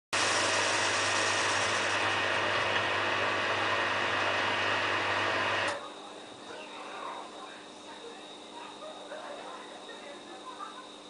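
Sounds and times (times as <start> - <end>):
washing machine spinning: 0.2 - 6.2.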